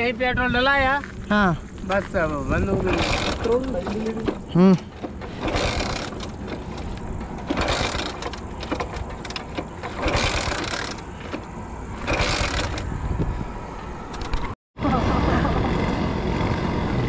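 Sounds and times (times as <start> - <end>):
vehicles passing: 0.9 - 17.0.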